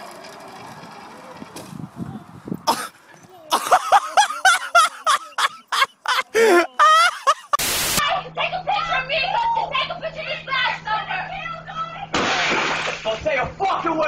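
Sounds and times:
static hiss: 7.6 - 8.0.

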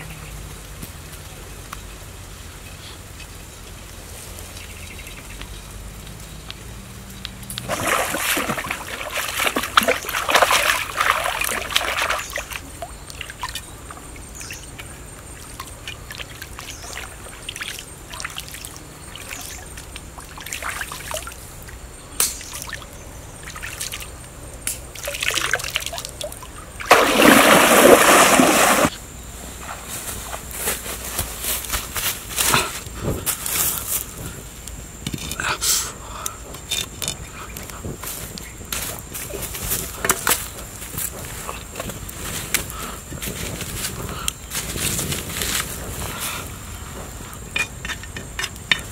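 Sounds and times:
water splashing and trickling: 4.3 - 21.8, 22.4 - 29.0
loud rush of water: 7.6 - 12.4, 26.8 - 29.0.

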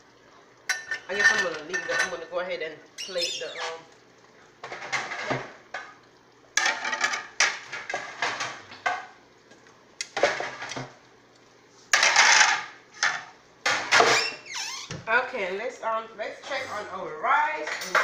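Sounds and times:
dishes and cutlery clattering: 0.7 - 2.2, 4.6 - 6.0, 6.6 - 9.1, 11.9 - 14.2, 17.7 - 18.0.

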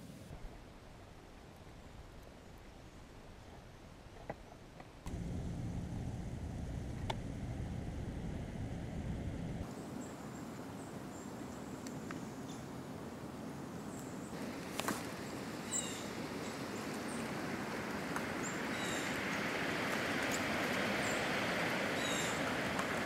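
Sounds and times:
steady rushing hiss: 5.1 - 23.0.

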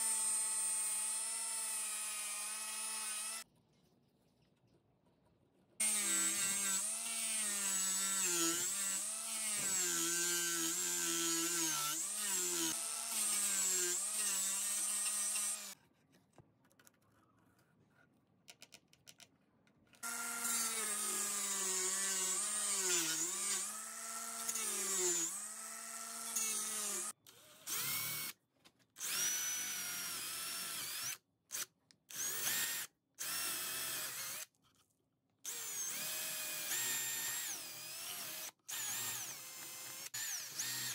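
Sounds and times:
angle grinder cutting wood: 0.0 - 3.4, 5.8 - 15.8, 20.0 - 27.2, 35.5 - 40.9
electric drill boring into wood: 0.0 - 3.4, 5.8 - 15.8, 20.0 - 27.1, 29.0 - 34.5, 35.5 - 40.9.

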